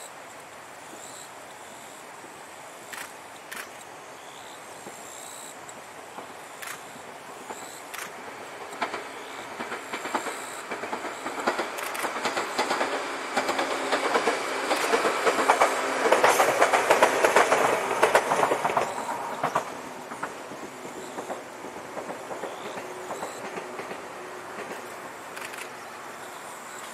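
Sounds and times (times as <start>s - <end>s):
electric train passing: 0.0s - 26.9s
wheels clicking over rail joints: 5.6s - 26.9s.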